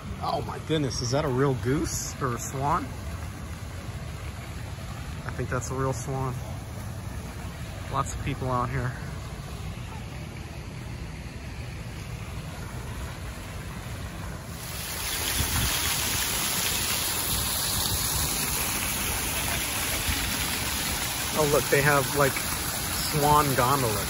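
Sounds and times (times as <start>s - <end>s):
steady rushing hiss: 5.2s - 24.0s
wind rumbling on microphone: 14.9s - 19.1s.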